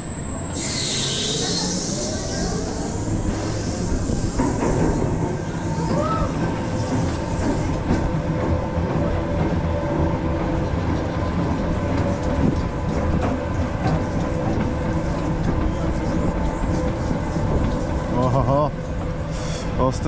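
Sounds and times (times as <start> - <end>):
roller coaster wheels rattling: 1.1 - 20.0.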